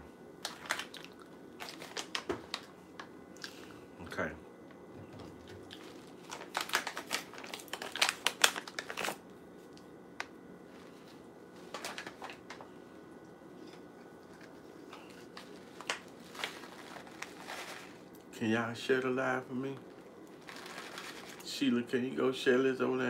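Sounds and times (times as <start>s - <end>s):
plastic packet crinkling: 0.4s - 2.7s, 5.3s - 9.2s, 11.6s - 12.6s, 14.4s - 18.2s, 19.8s - 21.6s.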